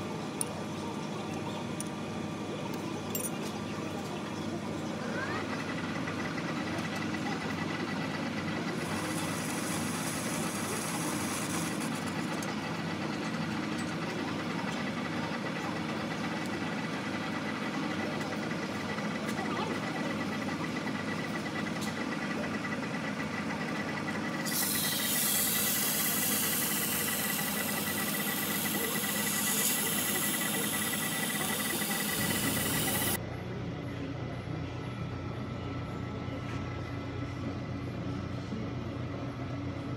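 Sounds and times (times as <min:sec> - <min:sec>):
metal lathe running: 0:05.4 - 0:33.2
thin high whine: 0:24.4 - 0:33.2.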